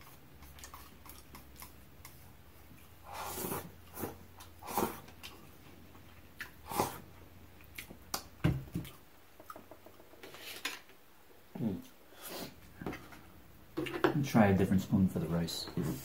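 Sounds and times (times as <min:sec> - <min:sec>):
chewing: 0:00.0 - 0:08.2
person slurping food: 0:03.0 - 0:05.2, 0:06.6 - 0:07.1.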